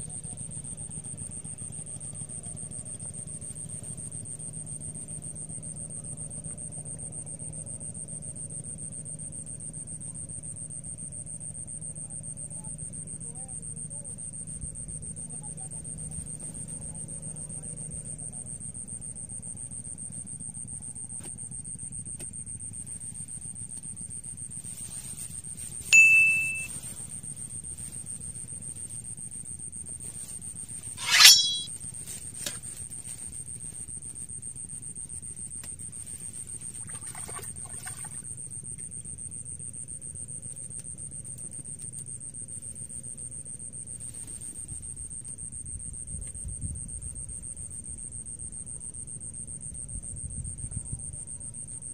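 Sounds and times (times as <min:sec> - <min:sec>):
metallic bite bell dings: 0:26.0 - 0:26.7, 0:31.0 - 0:31.7
steady high-pitched whine: 0:31.0 - 0:31.7.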